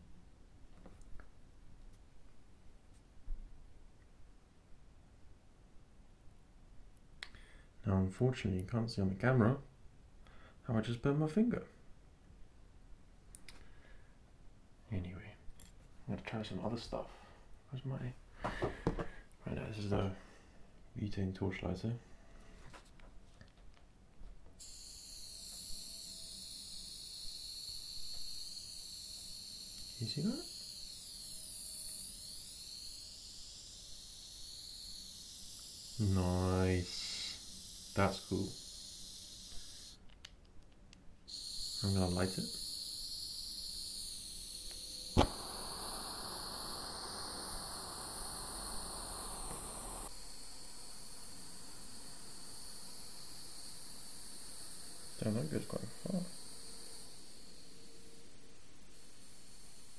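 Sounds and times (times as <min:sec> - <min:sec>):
lighter gas hissing: 0:24.6 - 0:40.0, 0:41.3 - 0:59.9
torch lighter ignition click: 0:44.6 - 0:50.2.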